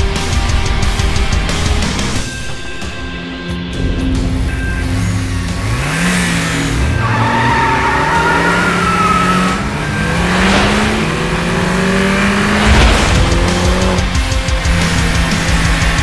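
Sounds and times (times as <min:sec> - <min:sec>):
vehicle engine revving: 0:03.6 - 0:16.0.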